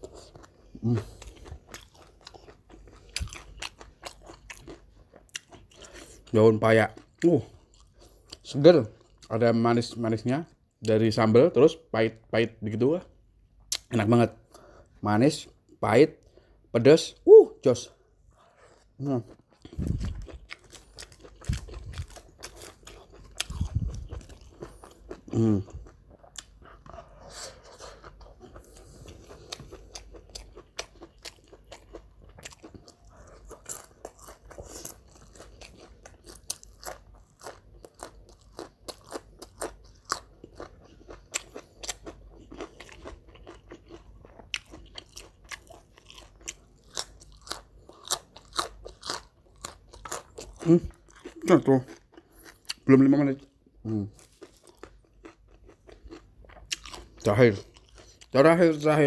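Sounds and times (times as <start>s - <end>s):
crunching crisp food: 0.0s - 10.0s, 18.4s - 59.0s.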